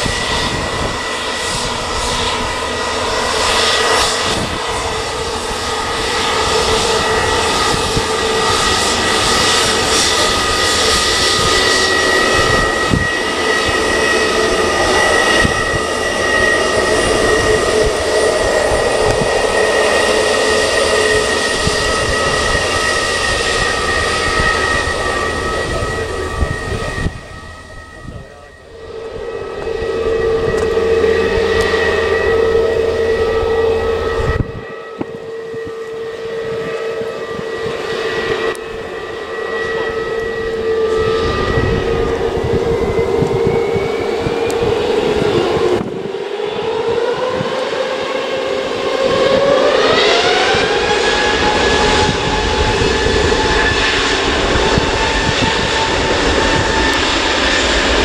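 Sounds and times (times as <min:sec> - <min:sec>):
jet airliner engines running: 0:00.0 - 0:58.0.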